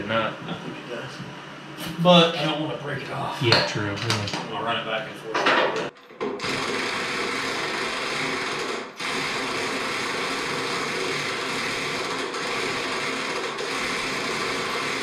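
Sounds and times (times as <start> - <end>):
impact wrench running: 6.2 - 15.0.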